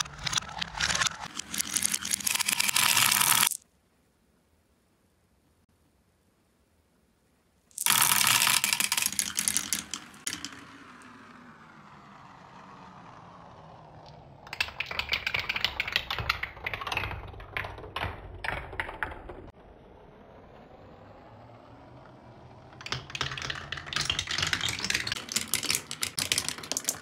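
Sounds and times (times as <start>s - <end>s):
marbles clacking on wooden rails: 0.0s - 3.6s, 7.7s - 12.0s, 13.6s - 19.5s, 22.6s - 27.0s
marbles clattering into tube: 0.0s - 3.6s, 7.7s - 11.2s, 13.9s - 19.5s, 22.8s - 27.0s
marbles rolling on wooden spiral: 0.0s - 3.6s, 7.7s - 27.0s.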